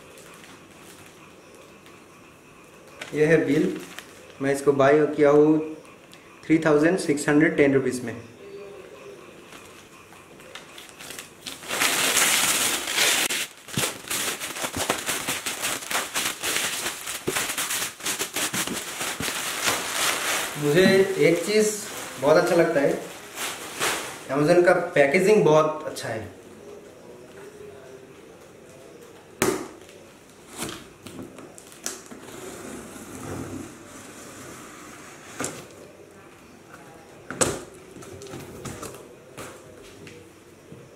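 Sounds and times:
plastic wrap crinkling: 3.0 - 4.4, 10.5 - 25.2, 29.7 - 32.3
rustling scrape of cardboard: 11.6 - 21.1.

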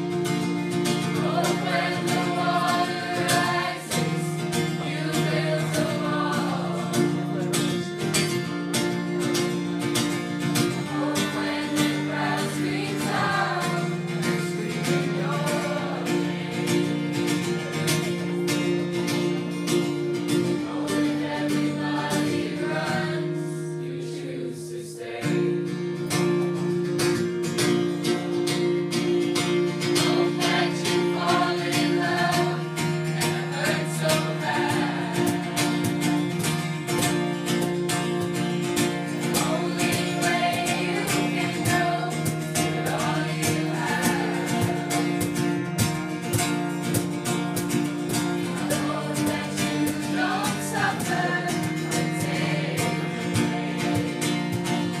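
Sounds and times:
cajon tapping a beat: 0.0 - 20.4, 26.2 - 55.0
acoustic guitar strumming: 0.0 - 55.0
choir singing in unison: 0.9 - 8.1, 10.4 - 17.5, 20.3 - 25.6, 29.9 - 37.0, 38.8 - 45.4, 48.3 - 55.0.

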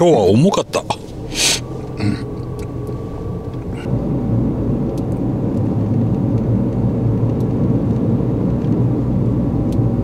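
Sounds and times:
car engine rumble: 0.0 - 10.0
tyre road noise: 0.0 - 10.0.

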